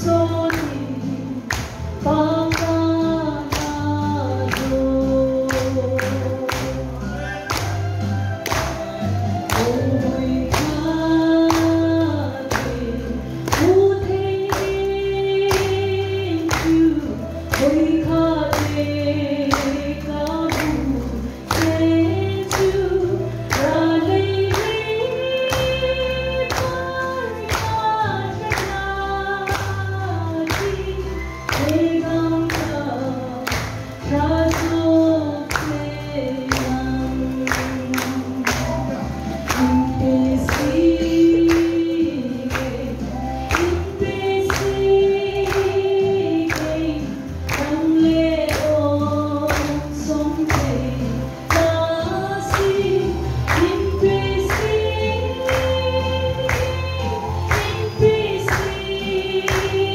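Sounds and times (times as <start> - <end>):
bass accompaniment: 0.0 - 59.9
hand-clapping on the beat: 0.0 - 59.9
group singing gospel: 31.2 - 59.9.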